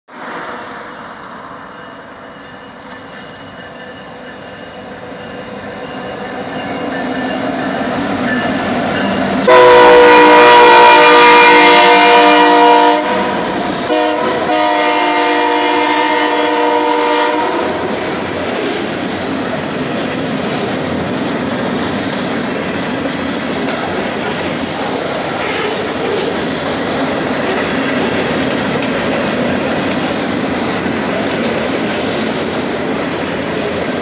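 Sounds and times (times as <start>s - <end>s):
boxcars rolling past: 0.1s - 34.0s
diesel locomotive rumbling: 0.1s - 34.0s
train air horn: 9.4s - 18.0s.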